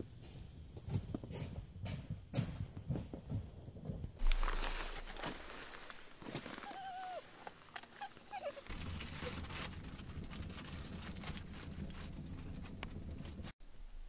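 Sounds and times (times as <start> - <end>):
wood fire crackling: 4.2 - 13.6
low rumble of flame: 8.6 - 13.6.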